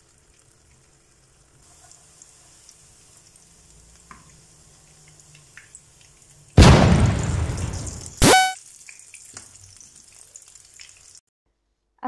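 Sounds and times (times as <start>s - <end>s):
hot oil sizzling in a pan: 0.0s - 11.3s
small crackles: 7.2s - 11.2s.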